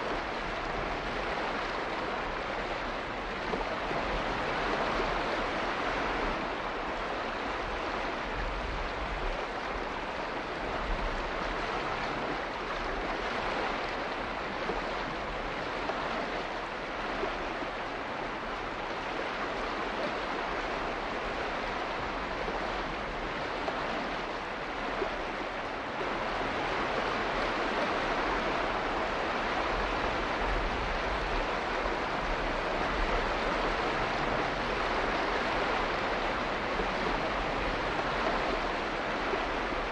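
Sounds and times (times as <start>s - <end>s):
water rushing: 0.0s - 39.9s.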